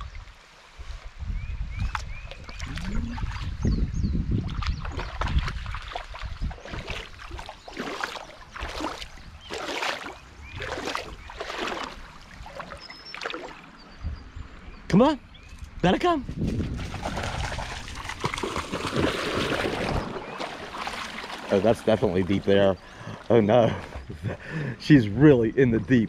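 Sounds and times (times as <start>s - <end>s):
wind rumble on microphone: 0.0s - 7.8s, 8.4s - 12.6s, 13.8s - 20.4s
wading steps sloshing in water: 4.4s - 13.9s, 16.5s - 24.2s.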